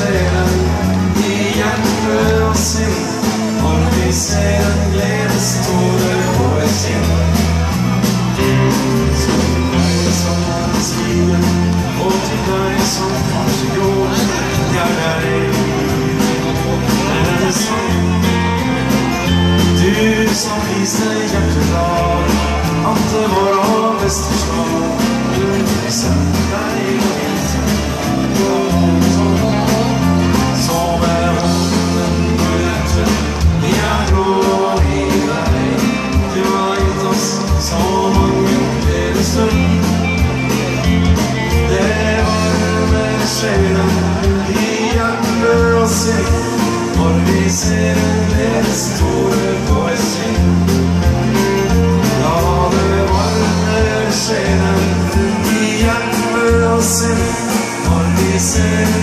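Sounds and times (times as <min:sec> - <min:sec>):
live band playing: 0:00.0 - 0:59.0
person singing: 0:00.0 - 0:59.0.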